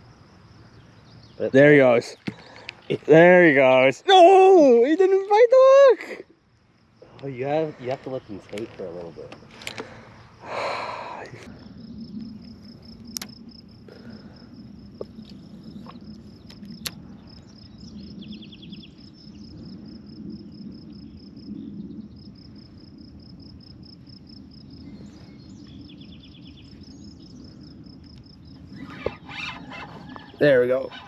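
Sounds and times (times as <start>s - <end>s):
fast insect trill: 0.0s - 31.0s
insect chirping: 0.0s - 31.0s
outdoor background noise: 0.0s - 31.0s
faint clicks: 8.5s - 10.0s.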